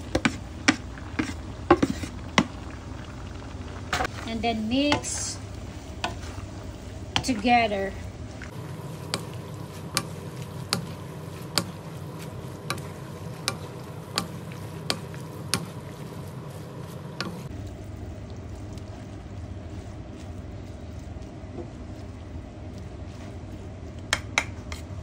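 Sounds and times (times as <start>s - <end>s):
frying sizzle: 0.0s - 25.0s
wooden spatula knocking on pan: 11.5s - 11.8s, 24.1s - 24.6s.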